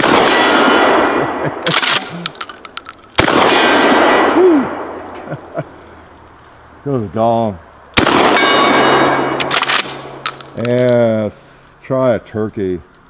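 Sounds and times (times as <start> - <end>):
shotgun shots echoing: 0.0 - 5.1, 8.0 - 10.9
shotgun mechanical clacks: 1.6 - 3.5, 9.3 - 11.0.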